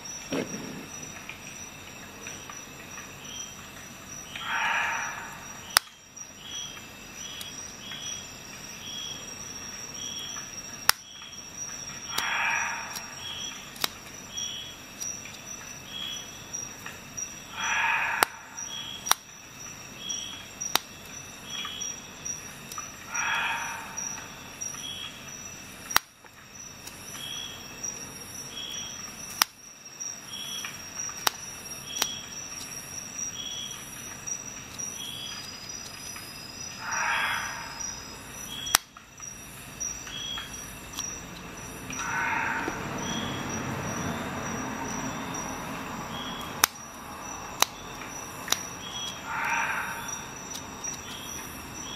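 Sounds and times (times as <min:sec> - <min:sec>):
sharp clicks of small blades: 0:11.7 - 0:14.1, 0:19.0 - 0:19.3, 0:25.9 - 0:27.1, 0:38.6 - 0:39.0, 0:46.4 - 0:49.6
scissors cutting cord: 0:13.7 - 0:14.0, 0:50.4 - 0:51.3.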